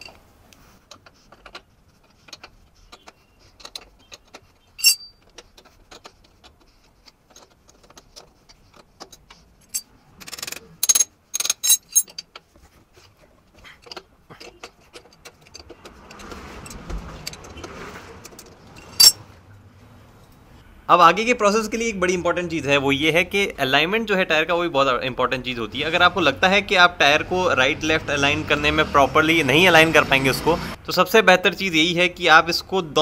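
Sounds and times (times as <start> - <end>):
spanner clinking on metal: 0.0 - 0.2, 0.9 - 12.5, 13.7 - 17.6, 18.2 - 19.2
metal scraping and rattling: 0.0 - 19.4.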